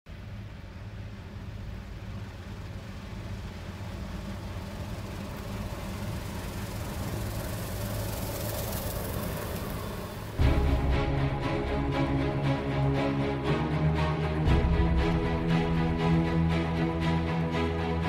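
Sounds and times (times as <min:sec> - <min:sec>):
combine harvester engine hum: 0:00.1 - 0:18.0
music: 0:10.4 - 0:18.0.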